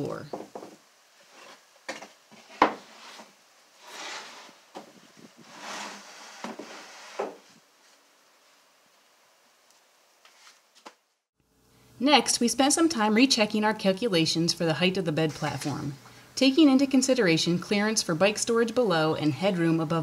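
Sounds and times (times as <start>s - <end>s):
wooden box scraping on floor: 1.2s - 7.6s.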